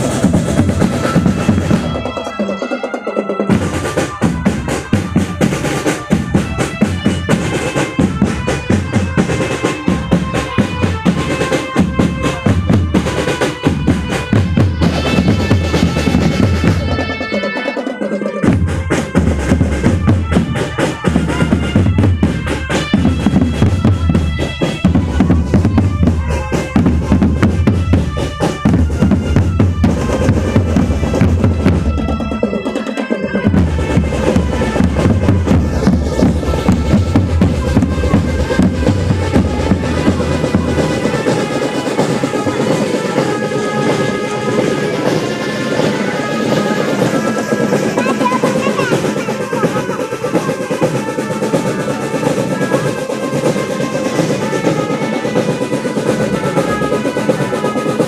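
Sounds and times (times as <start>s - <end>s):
held melody line: 0.0s - 58.0s
snare drums: 0.0s - 58.0s
bass drums beating: 21.2s - 32.4s, 33.4s - 41.4s.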